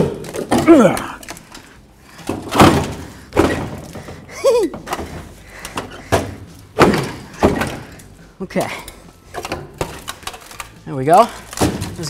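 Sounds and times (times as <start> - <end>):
heavy metal thunks and clanks: 2.1 - 10.6, 11.4 - 12.0.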